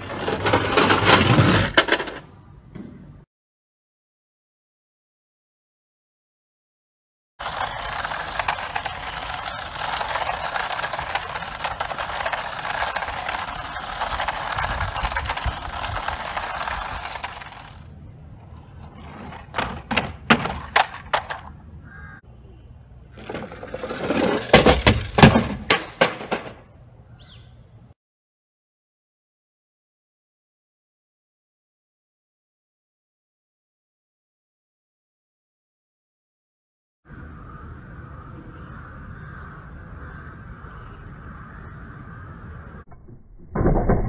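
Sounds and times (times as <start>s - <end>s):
toy car clattering on hard surfaces: 7.4s - 17.9s, 19.0s - 21.5s
toy car wheels rolling on stone: 7.4s - 21.5s, 23.1s - 26.6s.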